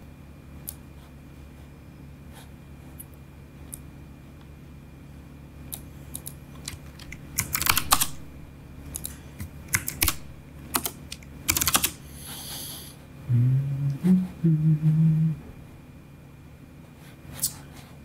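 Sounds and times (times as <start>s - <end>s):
keyboard keys clicking: 8.9s - 12.0s
low stepped hum: 13.2s - 17.1s.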